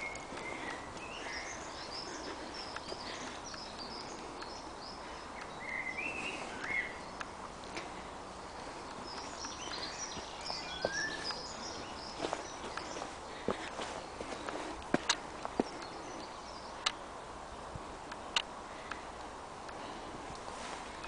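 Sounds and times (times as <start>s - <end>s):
faint footsteps on path: 0.0s - 21.0s
songbirds singing: 0.0s - 21.0s
steady outdoor hiss: 0.0s - 21.0s.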